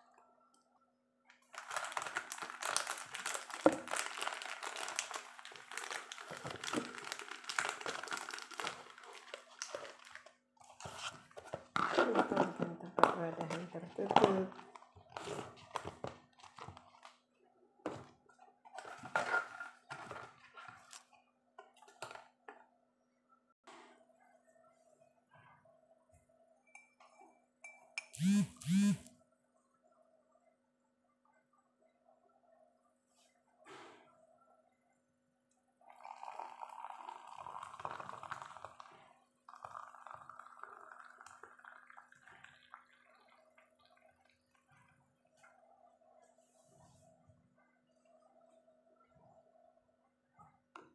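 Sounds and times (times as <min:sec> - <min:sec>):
water pouring into a glass: 0:35.8 - 0:45.9.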